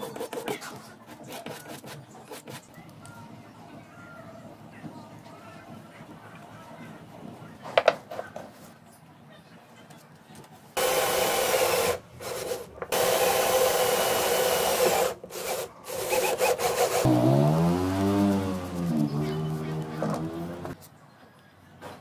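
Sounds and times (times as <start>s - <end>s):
cordless drill boring into concrete: 10.8s - 12.0s, 12.9s - 17.1s.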